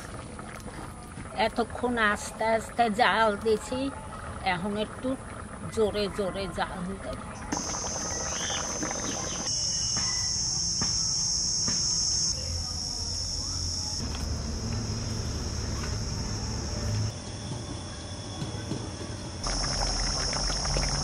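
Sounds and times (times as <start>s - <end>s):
high-pitched insect chorus: 7.6s - 21.0s.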